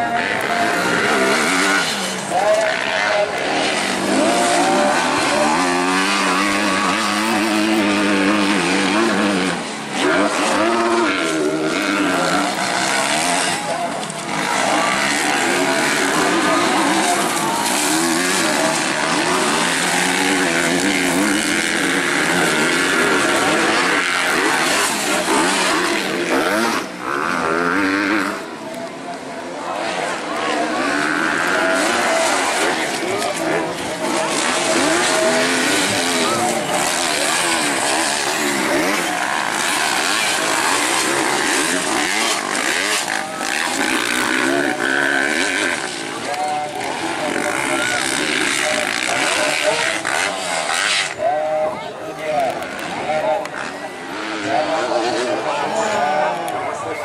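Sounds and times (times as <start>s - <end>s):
motocross bike engines revving: 0.0s - 57.0s.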